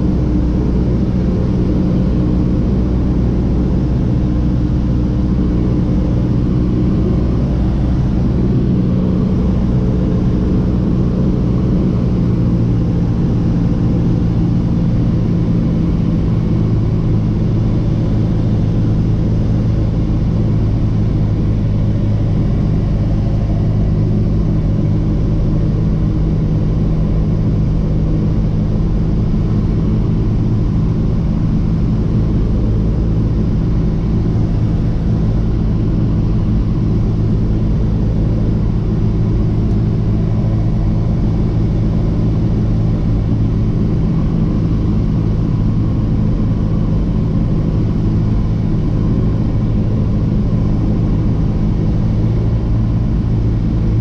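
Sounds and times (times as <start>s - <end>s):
airplane engine droning: 0.0s - 54.0s.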